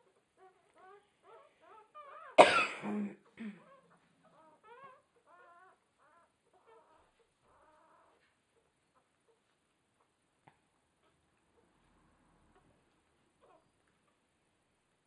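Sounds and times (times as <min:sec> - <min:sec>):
puppies squeaking and whimpering: 0:00.1 - 0:02.4, 0:03.6 - 0:10.2
loud cough: 0:02.4 - 0:03.6.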